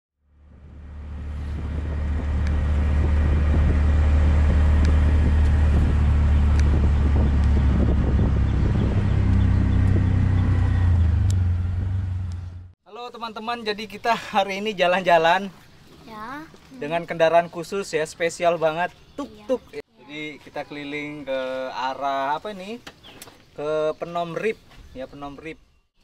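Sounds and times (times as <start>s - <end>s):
engine and road rumble: 0.2s - 12.8s.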